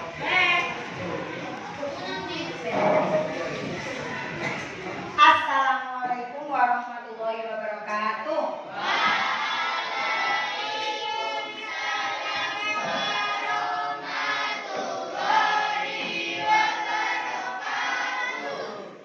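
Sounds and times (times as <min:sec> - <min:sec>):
children singing in unison: 0:08.7 - 0:19.0.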